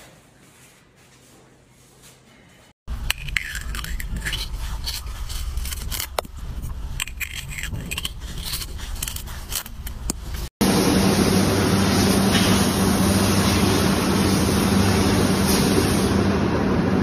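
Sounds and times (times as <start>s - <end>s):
melon baller scraping squash: 3.2s - 10.5s.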